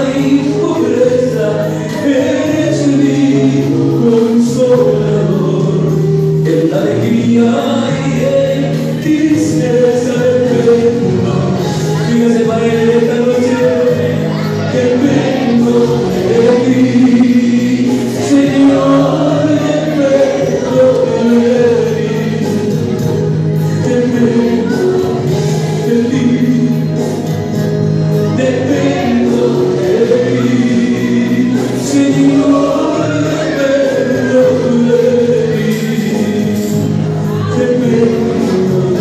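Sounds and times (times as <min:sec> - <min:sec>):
man singing into microphone: 0:00.0 - 0:27.5, 0:28.1 - 0:39.0
instrumental music: 0:16.3 - 0:18.1.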